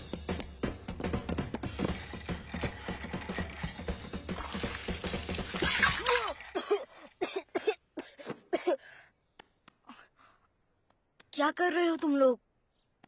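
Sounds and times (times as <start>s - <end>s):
liquid splashing: 1.9s - 7.2s
boy coughing and gasping: 5.8s - 9.0s.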